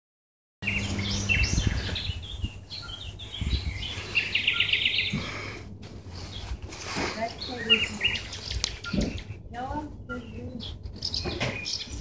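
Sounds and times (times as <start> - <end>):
bird trill: 0.6 - 5.3
low hum: 0.6 - 6.9
songbirds chirping: 0.6 - 12.0
muffled low thumps: 8.8 - 9.8.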